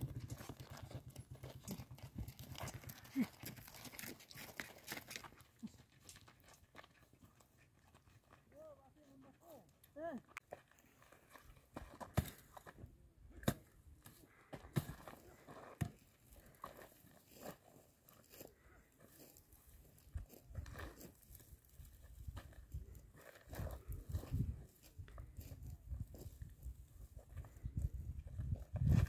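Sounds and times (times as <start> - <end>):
mattock striking stony ground: 9.4 - 18.5.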